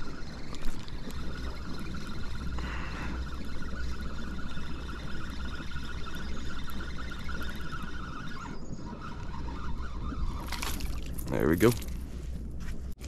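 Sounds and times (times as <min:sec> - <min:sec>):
fishing reel whirring: 0:00.0 - 0:11.6
wind buffeting microphone: 0:00.0 - 0:13.0.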